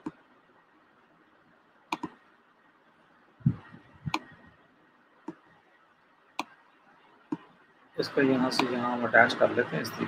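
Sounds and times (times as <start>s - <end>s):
computer mouse clicks: 1.9s - 2.2s, 4.1s - 4.3s.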